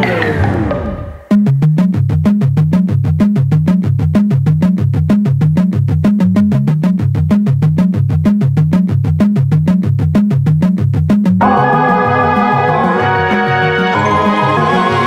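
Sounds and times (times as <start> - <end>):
repeating bass line: 0.0 - 15.0
fast synthesizer pulse: 11.4 - 15.0.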